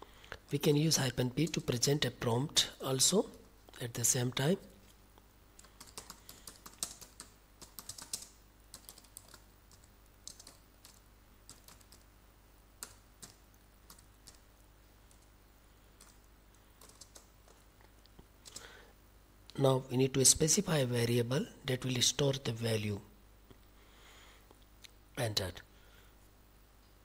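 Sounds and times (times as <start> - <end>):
keyboard typing: 5.6 - 12.1, 12.8 - 15.3, 16.0 - 17.6, 18.4 - 18.7.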